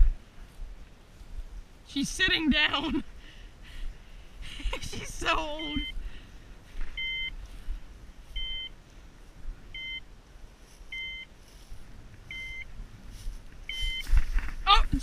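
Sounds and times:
two-tone electronic beeps: 0:05.6 - 0:06.0, 0:07.0 - 0:07.4, 0:08.4 - 0:08.8, 0:09.8 - 0:10.0, 0:10.9 - 0:11.3, 0:12.3 - 0:12.7, 0:13.7 - 0:14.1.

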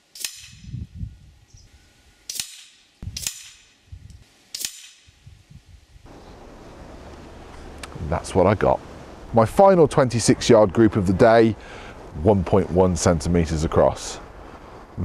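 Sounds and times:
air rifle shots: 0:04.5 - 0:05.1.

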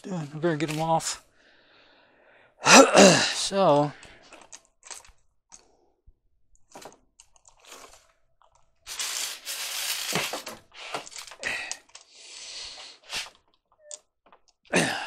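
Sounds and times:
crinkling rustle: 0:06.7 - 0:12.1.

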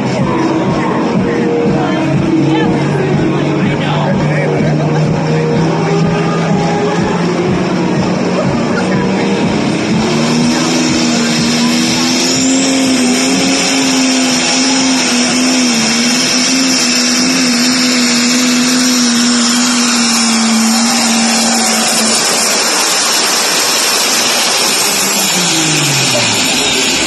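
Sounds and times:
tractor engine revving high: 0:00.0 - 0:27.0.

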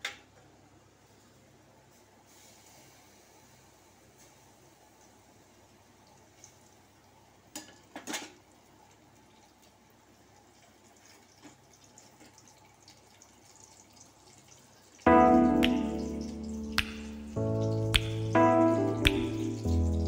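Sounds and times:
oil ticking and popping: 0:09.2 - 0:20.0.

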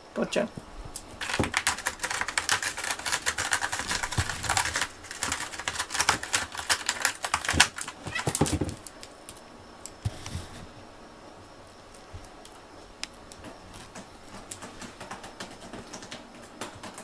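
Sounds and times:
cat scratching cardboard: 0:01.0 - 0:09.1.

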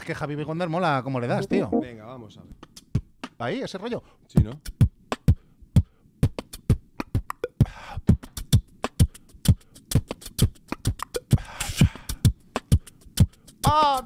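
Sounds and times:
beatboxing: 0:04.5 - 0:14.0.

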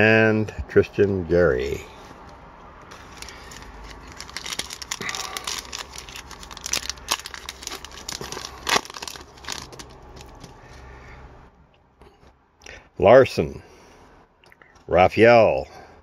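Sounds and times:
foil wrapper crinkling and tearing: 0:02.9 - 0:10.7.

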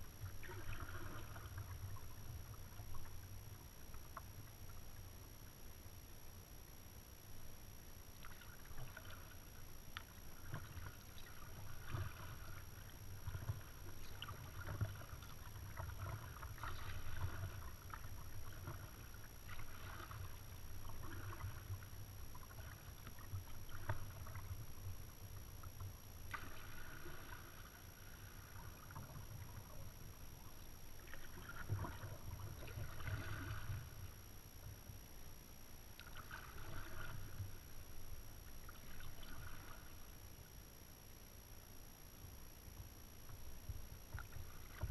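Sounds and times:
paddle splashing water: 0:00.0 - 0:03.2, 0:08.2 - 0:34.2, 0:36.0 - 0:40.2, 0:43.3 - 0:44.9
low steady rumble: 0:00.0 - 0:44.9.

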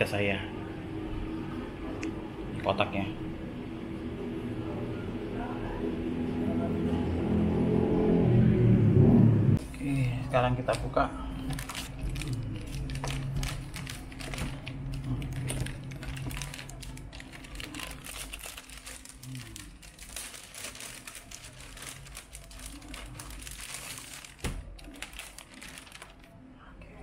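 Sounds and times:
plastic packaging crinkling: 0:11.3 - 0:26.5.

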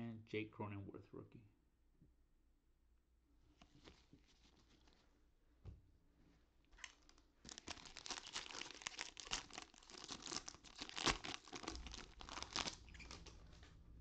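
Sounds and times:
foil wrapper tearing and crinkling: 0:06.8 - 0:13.3.

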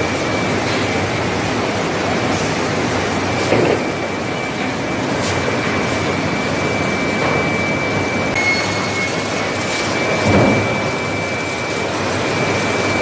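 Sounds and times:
high machine whine: 0:00.0 - 0:13.0
sawmill machinery running: 0:00.0 - 0:13.0.

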